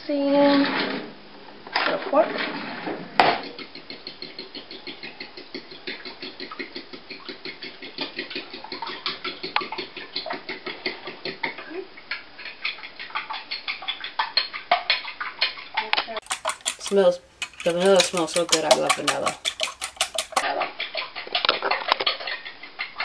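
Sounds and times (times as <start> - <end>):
fork beating eggs in ceramic bowl: 3.4 - 21.4.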